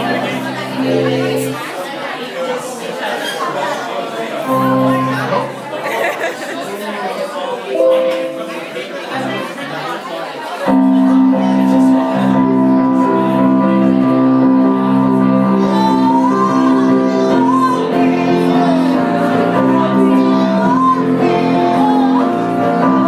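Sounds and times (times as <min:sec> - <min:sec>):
live band playing: 0:04.5 - 0:05.7, 0:07.8 - 0:09.5, 0:10.7 - 0:23.0
person singing: 0:10.7 - 0:23.0.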